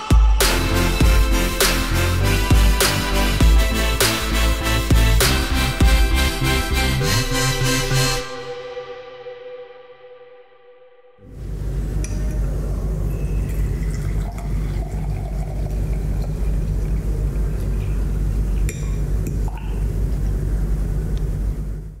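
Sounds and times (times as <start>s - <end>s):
water filling a glass: 13.2s - 18.2s.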